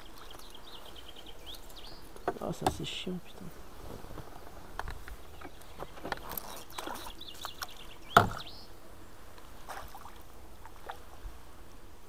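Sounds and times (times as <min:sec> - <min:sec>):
knocks on canoe: 0:08.1 - 0:08.5.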